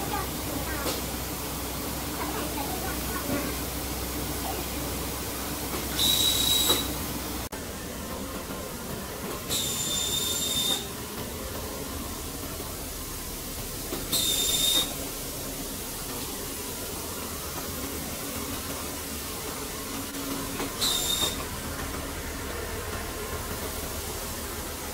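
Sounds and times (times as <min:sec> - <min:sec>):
steady background noise: 0:00.0 - 0:24.9
short whistling hisses: 0:06.0 - 0:06.9, 0:09.5 - 0:10.9, 0:20.8 - 0:21.4.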